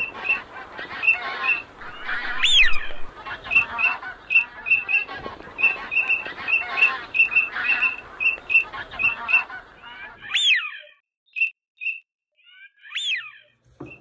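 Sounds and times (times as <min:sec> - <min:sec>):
geese honking: 0:00.0 - 0:10.6
whistled bird call: 0:00.0 - 0:14.0.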